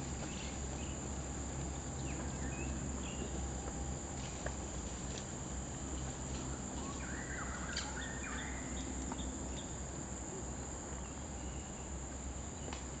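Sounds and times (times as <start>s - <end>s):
bird calls: 6.5s - 9.8s.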